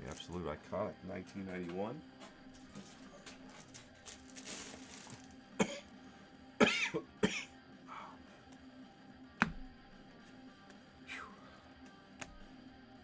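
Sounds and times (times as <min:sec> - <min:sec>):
man clearing throat: 0:05.6 - 0:05.9
man coughing: 0:05.6 - 0:05.9, 0:06.6 - 0:07.5.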